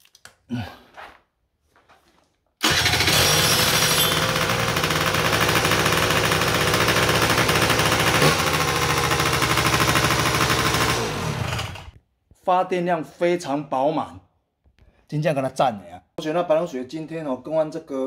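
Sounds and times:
scooter engine running: 2.6 - 12.0.

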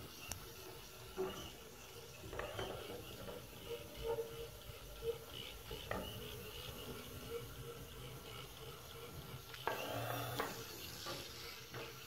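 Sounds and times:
small electric motors whirring: 4.3 - 12.0.

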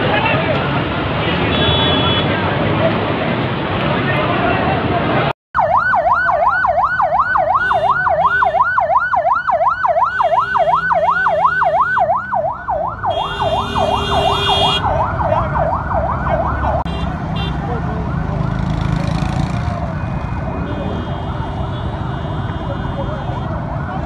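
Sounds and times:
ambulance siren yelp: 5.6 - 17.0, 17.6 - 24.0.

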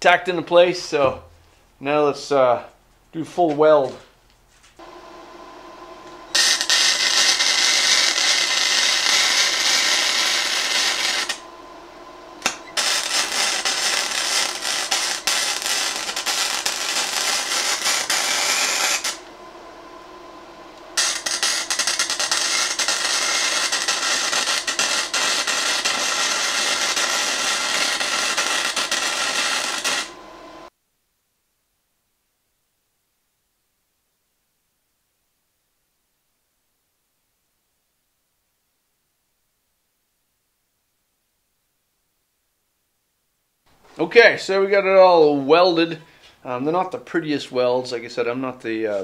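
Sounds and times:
welder hum: 4.8 - 30.7
welding arc crackle and hiss: 6.0 - 11.5, 12.4 - 19.3, 20.8 - 30.7.

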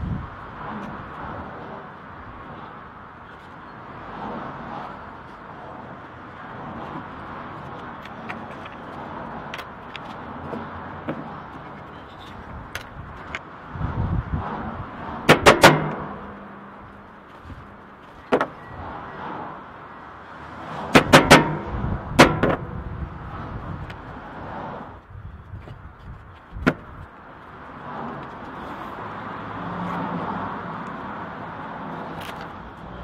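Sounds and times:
steady background noise: 0.0 - 33.0.

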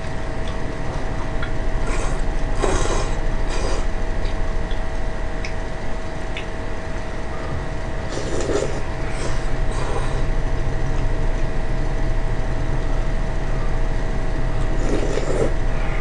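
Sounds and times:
steady low hum: 0.0 - 16.0
noodles slurped: 1.8 - 4.0, 8.0 - 10.3, 14.6 - 15.6.

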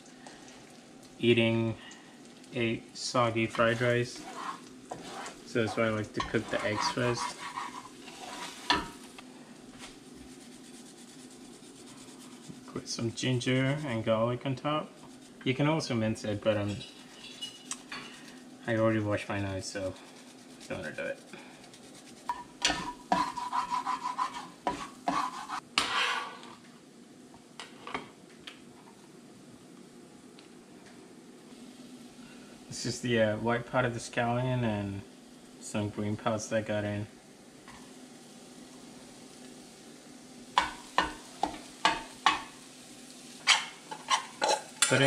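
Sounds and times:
aromatics sizzling in fat: 0.0 - 26.9, 27.5 - 45.0
metal utensil scraping eggs in skillet: 3.6 - 9.1, 10.0 - 12.8, 16.6 - 18.4, 20.0 - 26.5, 40.6 - 42.6, 43.3 - 45.0.

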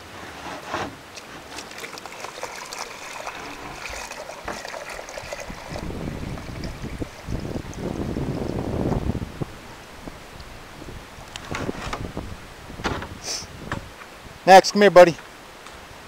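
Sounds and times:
water pouring into plastic tub: 1.1 - 8.9.

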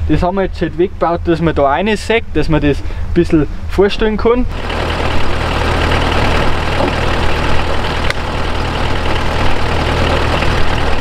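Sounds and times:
diesel engine running: 4.4 - 11.0.

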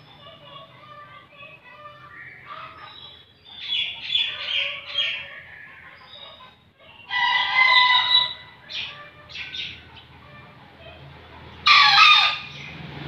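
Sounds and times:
rooster crowing: 7.1 - 8.6, 11.6 - 12.5.

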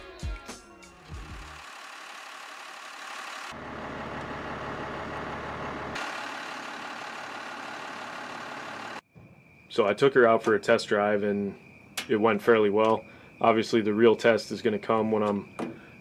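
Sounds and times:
diesel engine idling: 1.1 - 9.0.

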